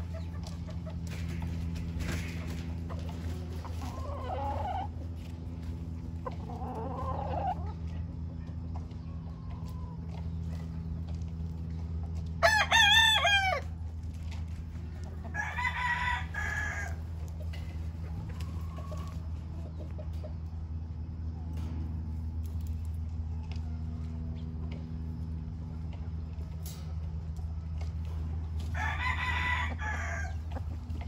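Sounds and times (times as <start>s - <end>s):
hens clucking: 0.0s - 31.0s
steady low hum: 0.0s - 31.0s
rooster crowing: 12.4s - 13.8s, 15.2s - 17.0s, 28.6s - 30.4s.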